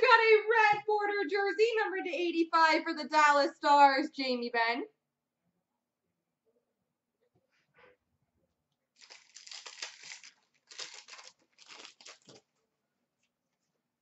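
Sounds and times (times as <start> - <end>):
wrapper tearing and crinkling: 9.0 - 12.5.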